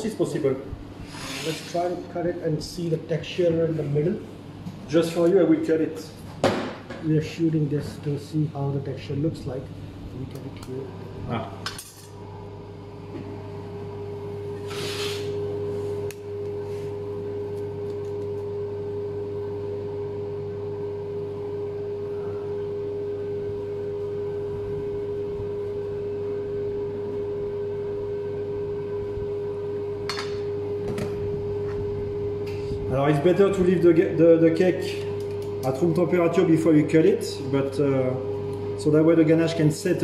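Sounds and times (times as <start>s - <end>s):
steady machine hum: 0.0s - 40.0s
knife scraping cutting board: 1.1s - 1.8s, 14.6s - 15.3s.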